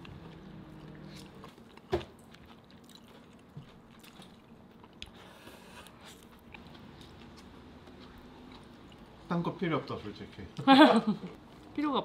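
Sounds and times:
person chewing food: 0:00.0 - 0:09.3.

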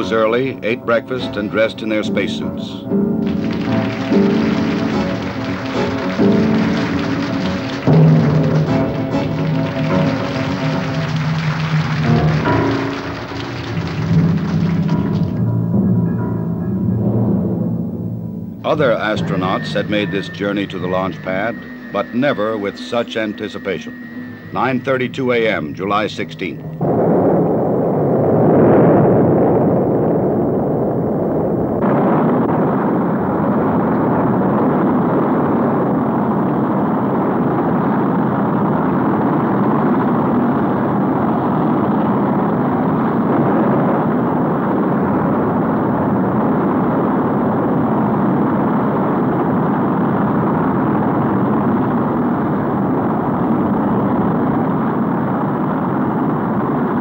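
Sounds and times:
rocket engines roaring: 0:00.0 - 0:15.7, 0:18.6 - 0:57.0.

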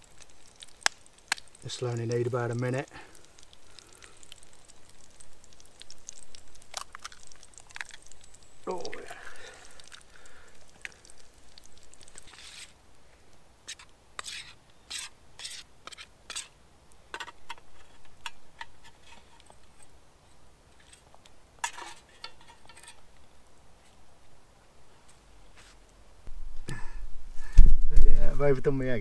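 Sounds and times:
metal utensil scraping pans: 0:13.7 - 0:16.5, 0:17.2 - 0:19.8, 0:21.6 - 0:23.0.

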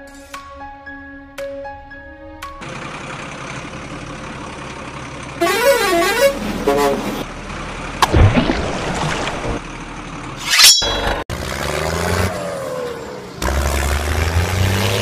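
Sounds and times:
truck engine: 0:02.4 - 0:15.0.

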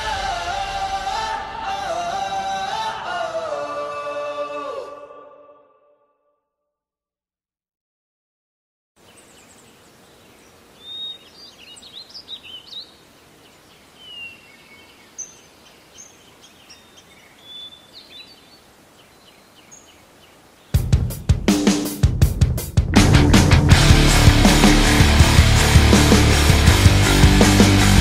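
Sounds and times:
birds chirping: 0:09.0 - 0:22.0
outdoor background hiss: 0:09.0 - 0:22.9.

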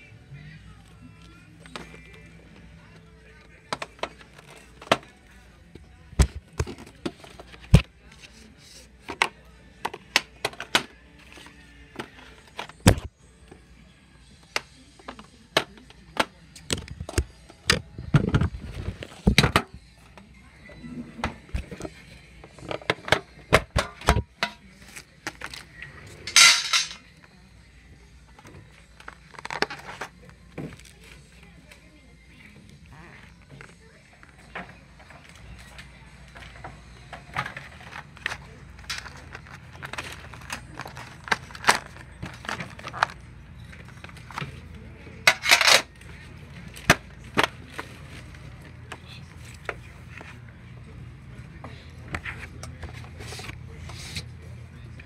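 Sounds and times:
metal tin clicking and knocking: 0:26.3 - 0:27.0.

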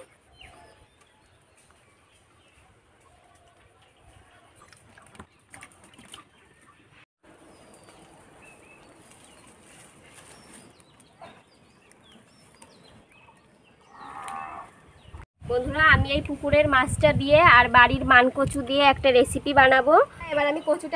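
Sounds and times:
small birds chirping: 0:06.2 - 0:15.2.

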